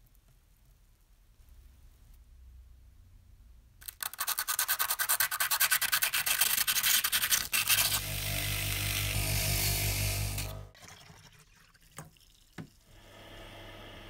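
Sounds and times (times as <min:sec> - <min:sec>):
metal shaft rasping on sandpaper: 0:03.9 - 0:08.0
power drill motor hum: 0:07.8 - 0:10.7.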